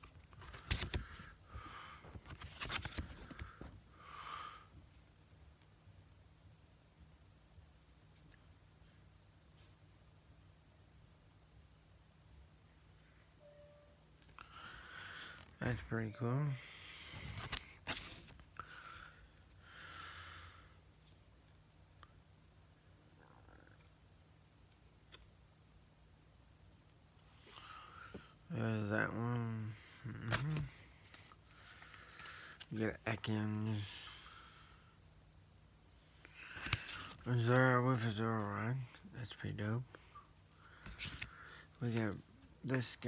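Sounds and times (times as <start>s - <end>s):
hand rustling over phone: 0.0s - 1.4s, 2.1s - 3.7s
soft breath: 14.4s - 15.6s, 16.5s - 17.8s.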